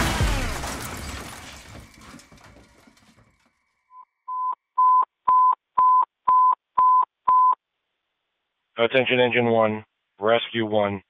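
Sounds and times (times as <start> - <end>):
crash noise: 0.0 - 3.5
short electronic beeps: 3.9 - 7.6.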